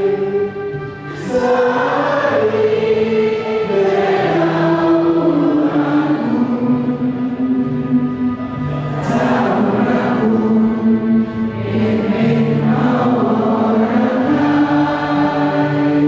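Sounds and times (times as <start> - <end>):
choir singing a slow hymn: 0.0 - 16.0.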